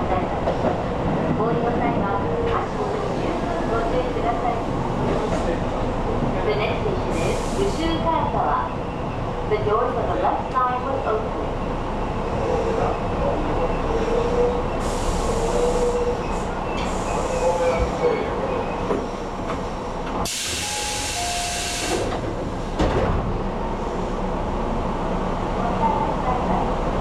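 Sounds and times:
train wheels rumbling on rail: 0.0 - 27.0
air hiss burst: 20.2 - 22.1.

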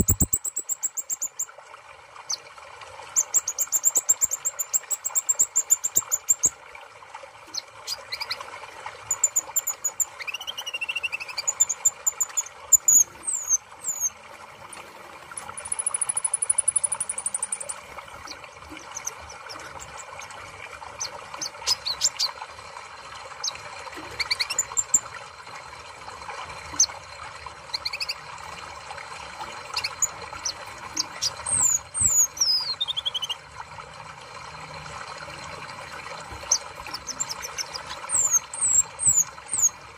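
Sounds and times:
bird chirping and whistling: 0.0 - 1.4, 9.1 - 14.1, 15.6 - 17.7, 24.2 - 25.0, 29.8 - 33.4, 36.5 - 39.8.

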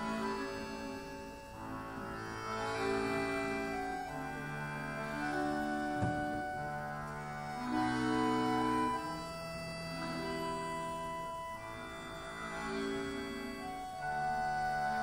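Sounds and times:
accordions playing chords: 0.0 - 15.0
short knock: 6.0 - 6.6.

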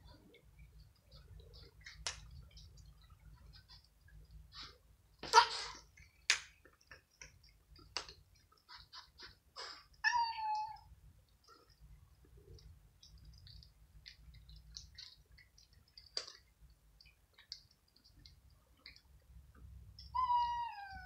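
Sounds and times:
cat meowing: 10.0 - 10.9, 20.1 - 21.0.

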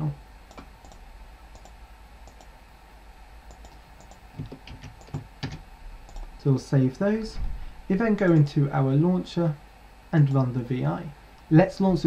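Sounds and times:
low steady hum: 0.0 - 12.0
computer mouse clicks: 0.5 - 2.5, 3.5 - 6.3.

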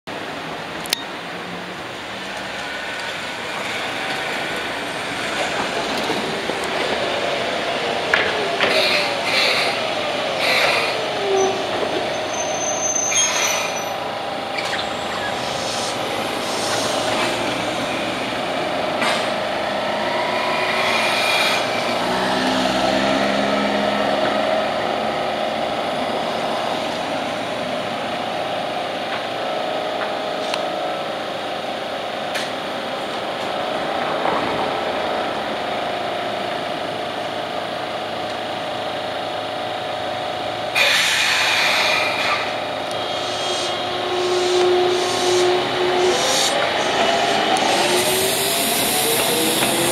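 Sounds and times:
tram equipment hum and whine: 0.1 - 49.9
loud hissing burst: 14.5 - 18.4, 40.8 - 49.9.

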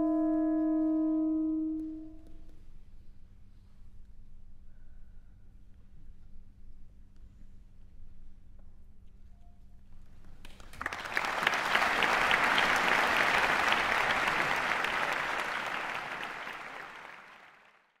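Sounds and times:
audience applauding: 10.4 - 18.0.

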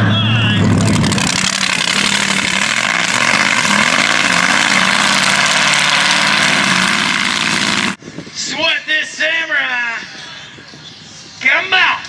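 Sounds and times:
truck engine roaring: 0.0 - 8.0.

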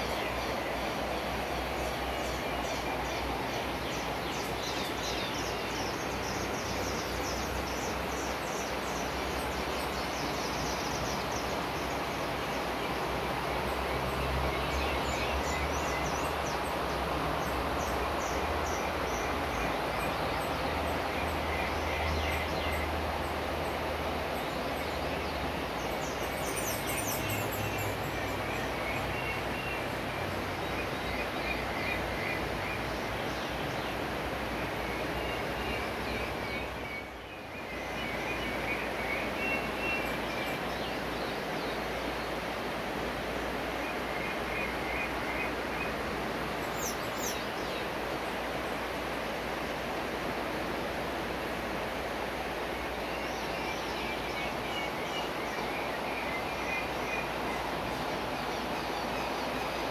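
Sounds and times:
flowing water rushing: 0.0 - 59.9
birds chirping and calling: 24.8 - 29.9.

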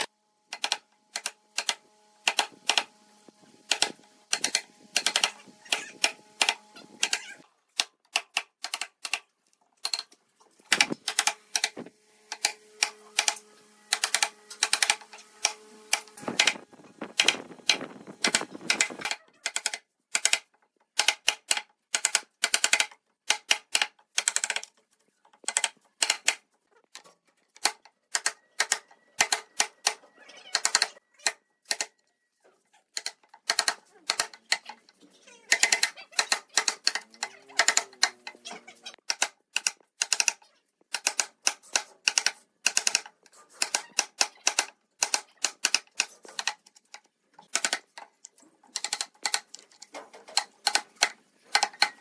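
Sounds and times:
wood chisel knocking: 35.5 - 38.4.

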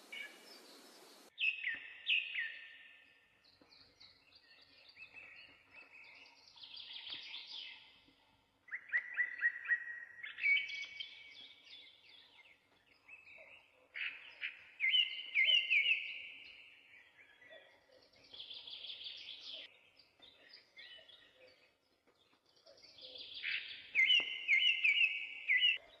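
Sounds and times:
bird chirping and trilling: 22.8 - 26.0.

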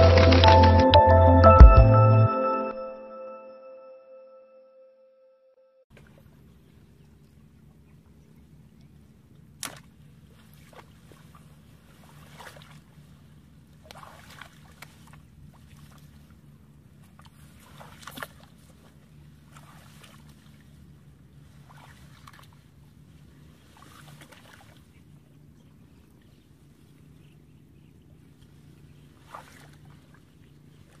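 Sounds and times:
low hum: 0.0 - 31.0
water splashing while wading: 8.9 - 27.2, 28.1 - 31.0.

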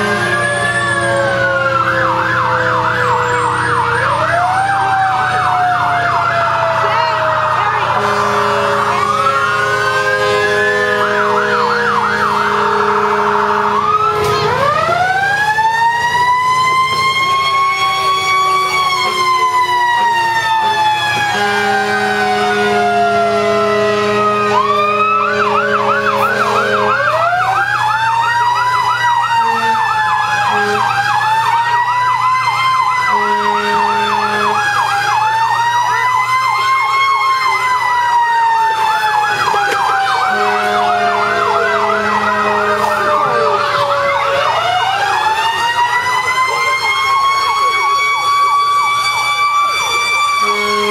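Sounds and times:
low steady horn tone: 0.0 - 1.4, 8.0 - 14.6, 17.8 - 27.3, 29.4 - 31.0, 33.1 - 34.8, 40.2 - 43.6, 50.4 - 50.9
siren wailing: 0.0 - 50.9
siren yelp warbling: 0.0 - 50.9.

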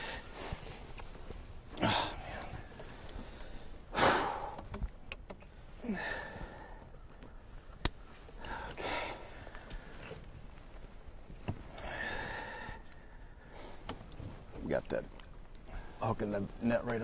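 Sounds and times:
man breathing heavily: 0.0 - 0.9, 1.7 - 4.7, 5.5 - 7.0, 8.3 - 10.2, 10.9 - 14.1.

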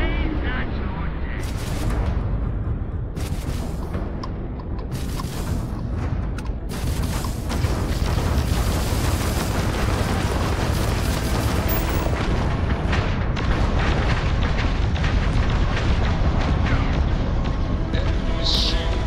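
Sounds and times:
game music: 0.0 - 19.0
continuous gunfire: 1.4 - 2.4, 3.1 - 4.2, 4.8 - 19.0
explosions: 6.6 - 17.6.

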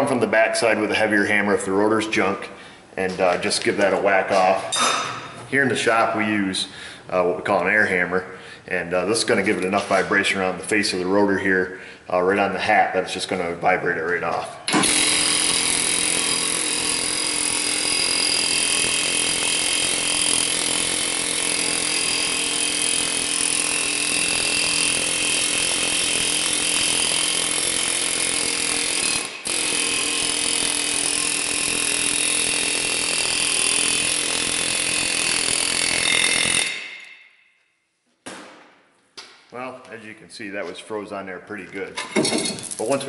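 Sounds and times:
pneumatic air hammer rattling: 14.6 - 37.2.

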